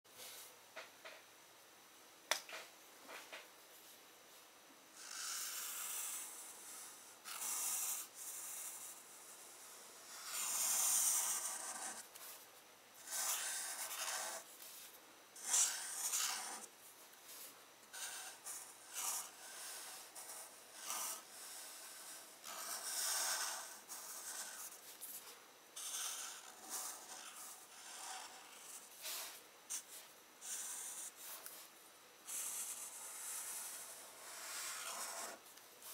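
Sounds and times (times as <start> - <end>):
marker scratching on paper: 10.0 - 12.4, 13.0 - 16.7, 17.3 - 25.2, 25.8 - 31.7, 32.3 - 35.9.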